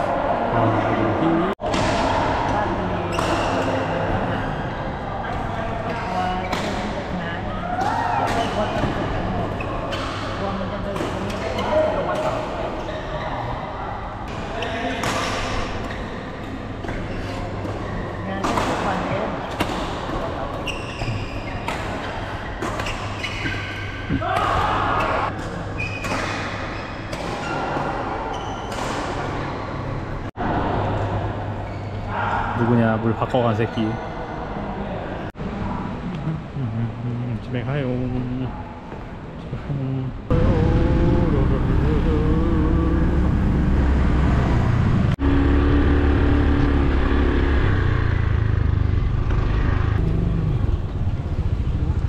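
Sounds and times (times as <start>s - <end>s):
shoes squeaking on court floor: 20.6s - 22.0s, 25.2s - 29.7s
steady low hum: 35.4s - 52.0s.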